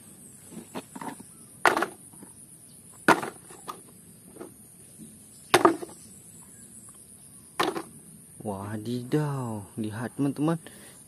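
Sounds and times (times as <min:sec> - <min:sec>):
plastic toys knocking together: 0:01.0 - 0:02.3, 0:03.0 - 0:04.5, 0:05.5 - 0:06.0, 0:07.6 - 0:07.9.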